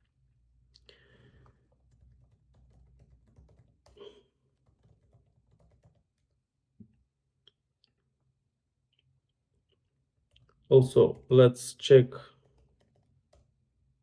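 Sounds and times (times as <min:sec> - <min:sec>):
computer keyboard typing: 0:01.4 - 0:06.4, 0:12.3 - 0:13.6.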